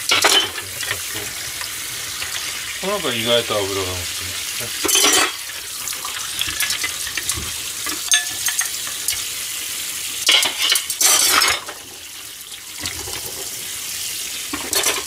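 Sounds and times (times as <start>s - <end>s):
metal utensils clinking on dishes: 0.0s - 1.1s, 4.8s - 9.3s, 10.2s - 11.8s, 14.5s - 15.0s
tap water running onto dishes: 0.0s - 15.0s.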